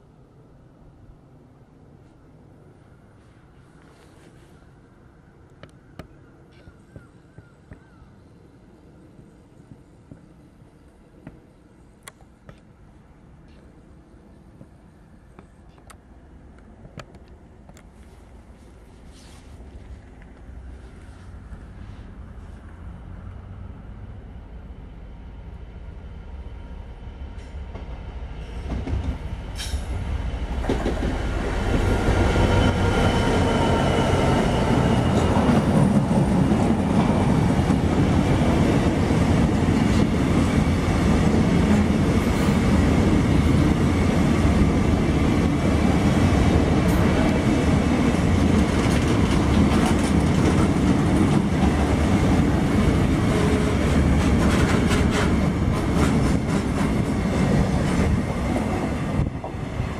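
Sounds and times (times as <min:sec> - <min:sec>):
freight train rumbling past: 0:18.0 - 0:59.9.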